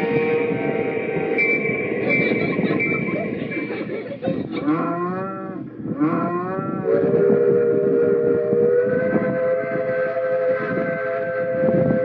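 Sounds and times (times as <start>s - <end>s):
steady horn blast: 0.0s - 3.4s, 6.6s - 12.0s
cow mooing: 4.6s - 6.8s.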